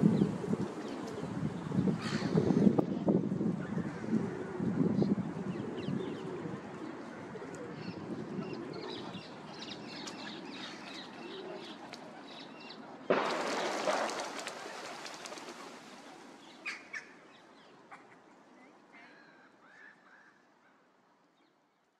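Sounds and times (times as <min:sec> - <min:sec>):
wings flapping and water splashing: 0:13.1 - 0:17.0.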